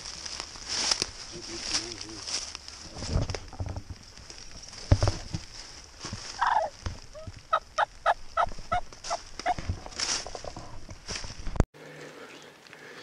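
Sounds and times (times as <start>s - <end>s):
wild turkey hen calling: 6.4s - 9.6s.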